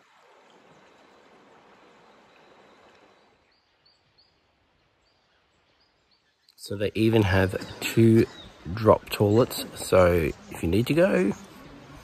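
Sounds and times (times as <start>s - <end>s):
river flowing over stones: 0.0s - 6.0s.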